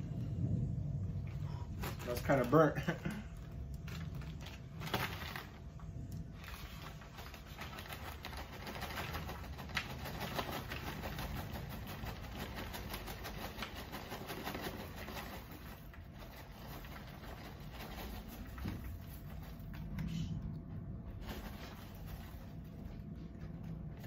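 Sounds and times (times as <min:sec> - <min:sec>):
popcorn kernels tumbling: 0:00.0 - 0:24.0
paper bag crinkling: 0:01.7 - 0:20.0.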